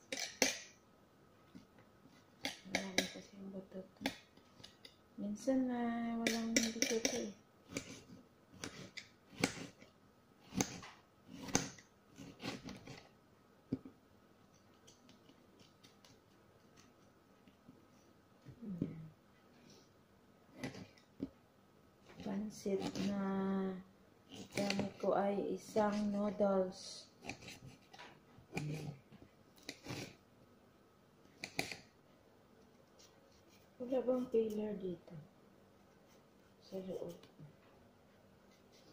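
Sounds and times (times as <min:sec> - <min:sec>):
knife slicing a tomato: 0:06.2 - 0:09.8, 0:10.4 - 0:13.1, 0:22.2 - 0:23.2, 0:24.3 - 0:25.1, 0:27.1 - 0:29.0, 0:29.6 - 0:30.2.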